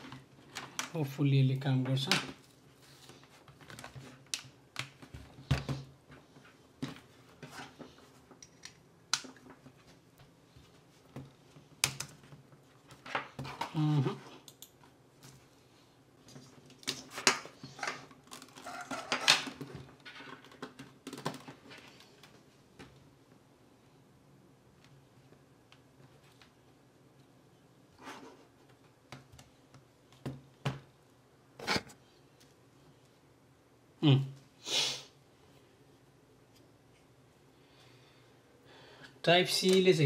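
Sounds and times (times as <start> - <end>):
cables being handled: 0.0 - 1.0, 1.7 - 23.4.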